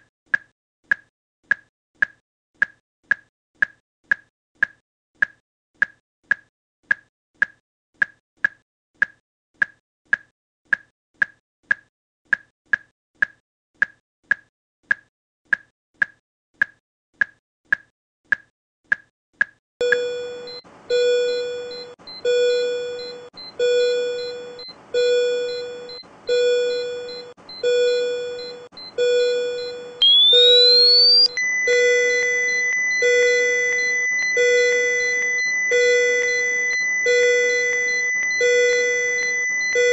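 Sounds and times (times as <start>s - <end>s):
cardiac monitor beeping: 19.8s - 39.9s
steady high tone: 30.0s - 31.3s
repeating alarm tone: 30.0s - 38.2s.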